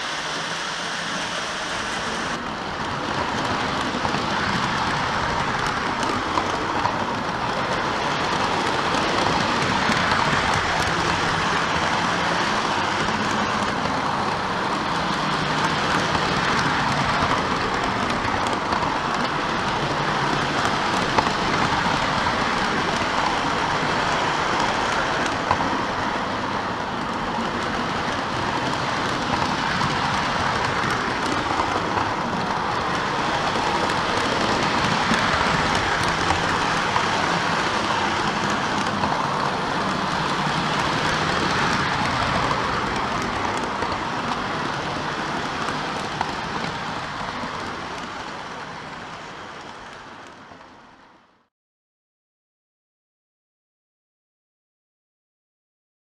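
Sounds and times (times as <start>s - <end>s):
model train wheels rattling: 26.8s - 48.2s.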